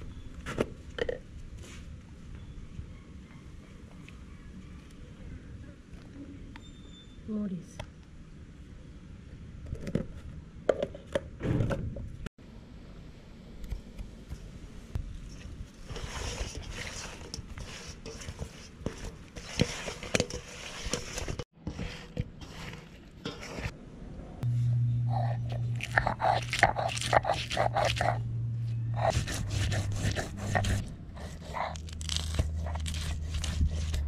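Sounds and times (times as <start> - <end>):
hands mixing fish in steel bowl: 15.8 - 23.7
low hum: 23.7 - 34.0.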